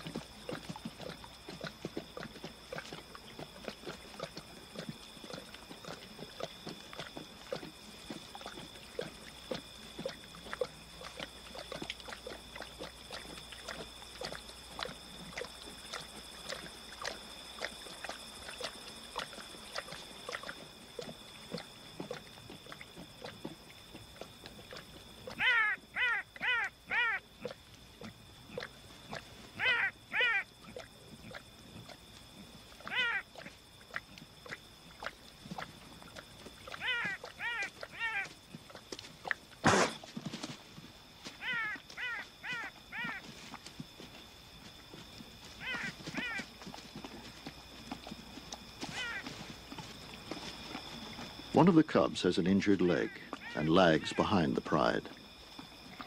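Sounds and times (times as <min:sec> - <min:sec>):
lions chewing and crunching: 0:00.0 - 0:56.0
short pitched yelping calls: 0:25.3 - 0:27.3, 0:29.6 - 0:30.5, 0:32.8 - 0:33.3, 0:36.8 - 0:38.3, 0:41.4 - 0:43.2, 0:45.6 - 0:46.5, 0:48.9 - 0:49.3, 0:53.0 - 0:54.2.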